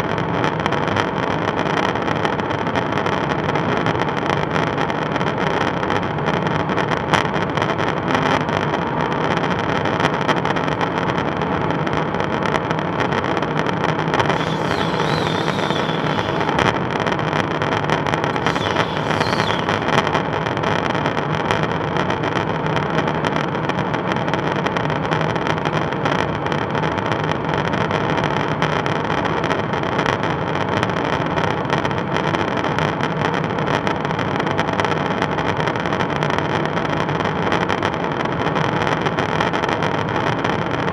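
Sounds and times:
aircraft engine and airflow drone: 14.2s - 16.7s, 18.4s - 20.0s
faint wavering high tone: 14.3s - 16.7s, 18.4s - 20.0s.

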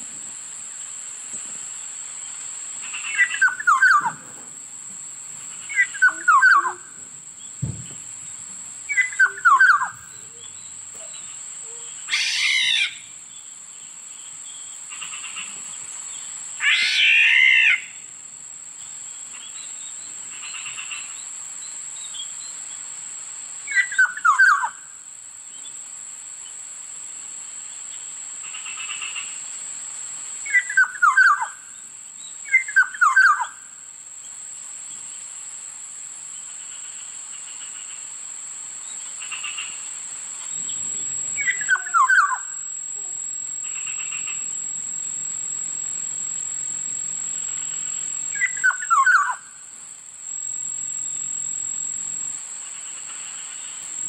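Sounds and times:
bird calling: 2.8s - 4.4s, 5.6s - 8.0s, 8.9s - 13.1s, 40.5s - 44.6s, 47.4s - 49.6s.

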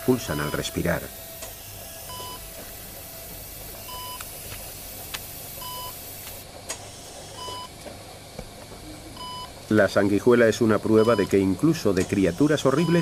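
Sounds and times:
patient monitor beeping: 0.0s - 7.8s, 9.2s - 9.6s, 10.8s - 13.0s.

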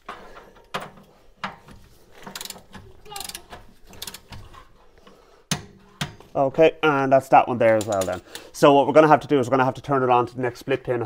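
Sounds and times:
ratchet wrench clicking: 2.2s - 4.4s.

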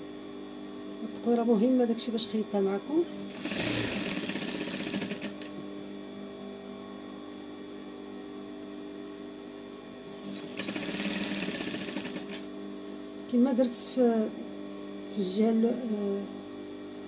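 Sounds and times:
sewing machine motor humming: 3.2s - 5.6s, 10.2s - 12.5s
sewing machine stitching: 3.3s - 5.5s, 10.3s - 12.5s.

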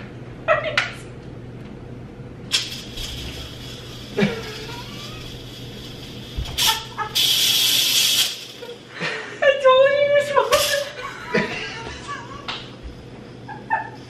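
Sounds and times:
steam hissing from pressure cooker: 2.5s - 8.8s.

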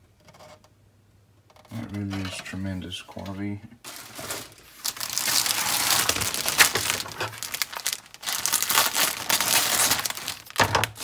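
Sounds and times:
plastic bags crinkling: 3.8s - 11.0s.

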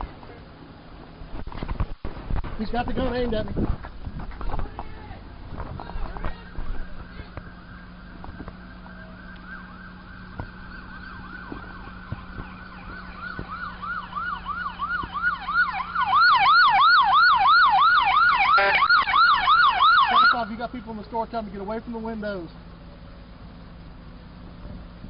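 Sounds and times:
siren yelping: 5.8s - 20.6s.

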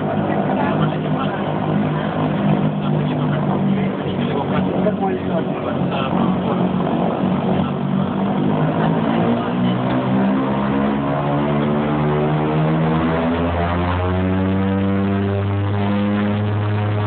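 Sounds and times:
deep hum: 0.0s - 17.0s
turboprop drone in cabin: 0.0s - 17.0s.

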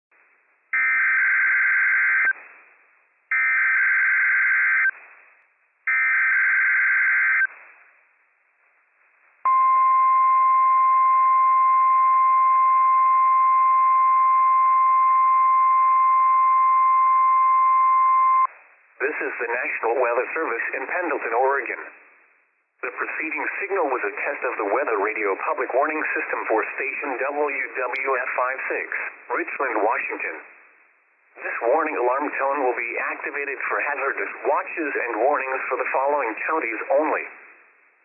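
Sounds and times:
radio hiss: 18.5s - 22.1s, 22.8s - 30.6s, 31.3s - 37.6s.

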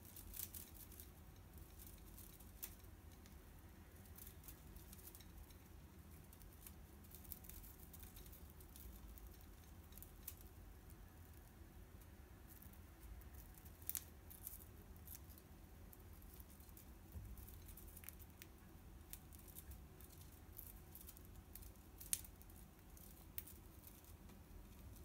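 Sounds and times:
bird beak nibbling dried grass: 12.5s - 25.0s.

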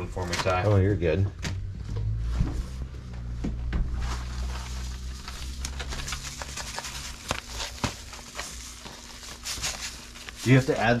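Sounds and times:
low steady hum: 0.0s - 11.0s
plastic bag crinkling: 3.9s - 11.0s.

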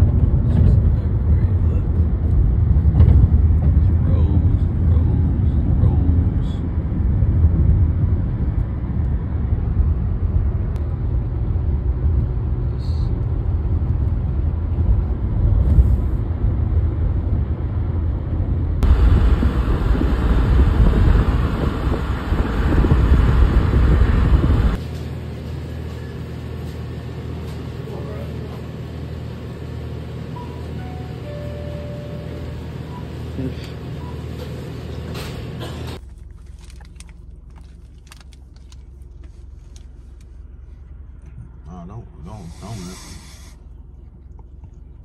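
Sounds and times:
car cabin road and engine rumble: 0.0s - 24.8s, 26.5s - 45.0s.

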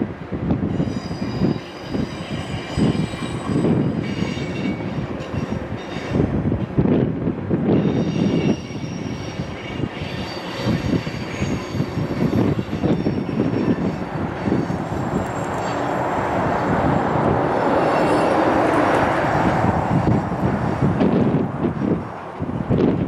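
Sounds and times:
steel wheels rumbling on rail: 0.0s - 23.0s
rushing noise: 0.4s - 23.0s
high wheel squeal: 0.7s - 6.3s, 7.7s - 19.5s.

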